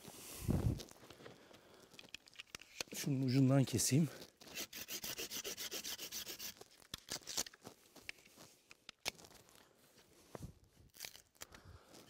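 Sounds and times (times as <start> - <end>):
clicks and rustles of rope handling: 0.0 - 4.6, 6.4 - 12.0
knife sawing through rope: 4.4 - 6.7.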